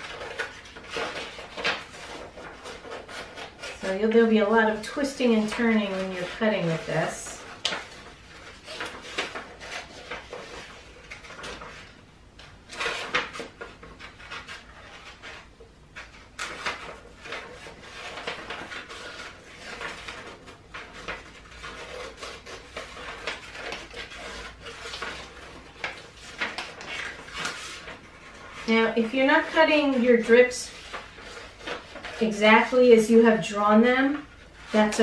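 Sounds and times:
scissors snipping paper: 0.0s - 32.8s
paper rustling: 0.0s - 35.0s.

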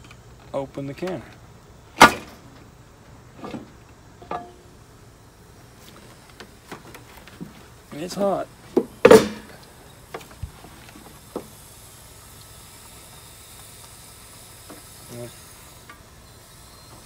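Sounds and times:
faint hiss and sizzle: 0.0s - 17.0s
metal lid clanking: 4.2s - 4.7s.

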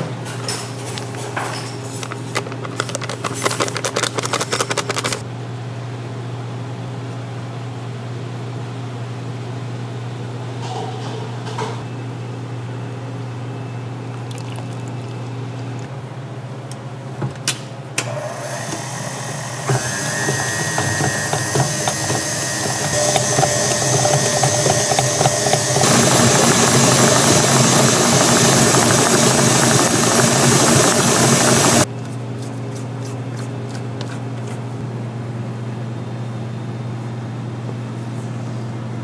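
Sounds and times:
electric mixer motor running: 18.1s - 31.9s.

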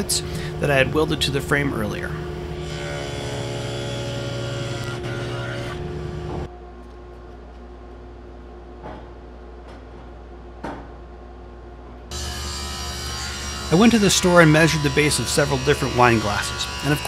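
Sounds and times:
table saw cutting wood: 2.5s - 6.5s, 12.1s - 17.0s.

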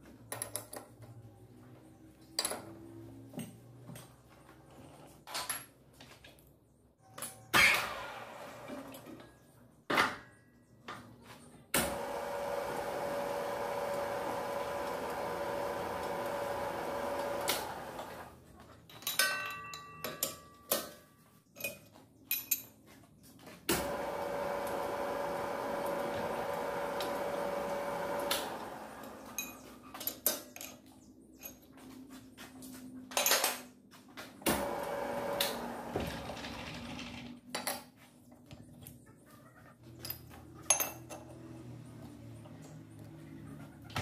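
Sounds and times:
lathe running with a hum: 11.8s - 18.3s, 23.8s - 29.3s, 34.6s - 36.3s.

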